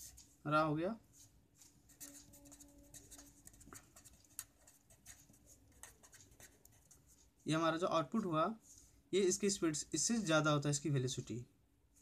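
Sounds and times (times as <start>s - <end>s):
marker scratching on paper: 1.2s - 7.4s.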